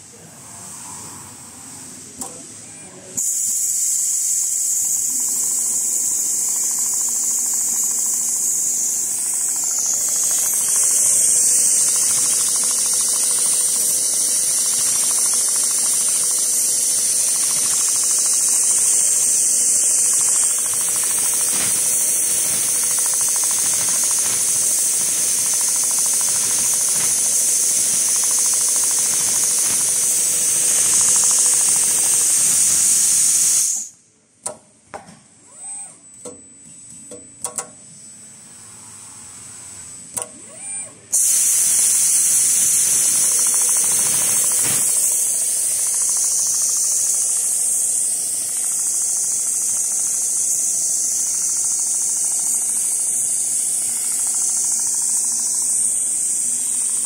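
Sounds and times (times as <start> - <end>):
sewing machine hiss: 0.0 - 34.0, 36.7 - 57.0.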